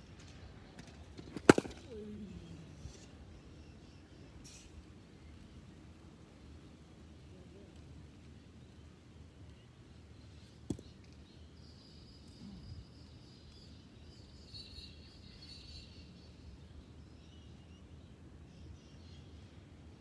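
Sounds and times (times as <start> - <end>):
faint bird chirping: 1.8 - 6.0, 8.3 - 20.0.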